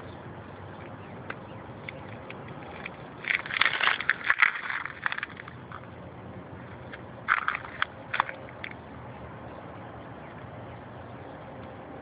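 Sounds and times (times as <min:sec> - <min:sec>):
footsteps on gravel: 0:02.6 - 0:05.8.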